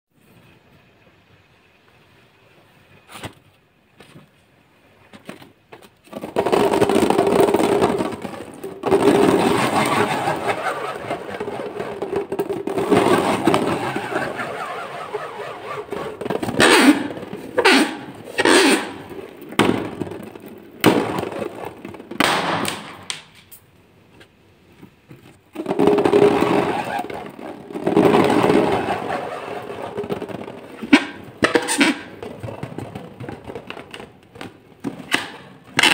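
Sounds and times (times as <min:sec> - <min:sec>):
hands rubbing rubber balloons: 0:06.1 - 0:23.1, 0:25.5 - 0:34.1.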